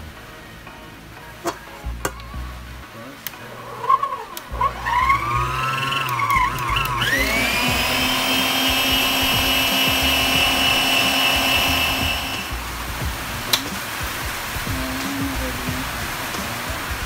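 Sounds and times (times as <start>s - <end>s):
stand mixer motor whining: 4.6s - 12.5s.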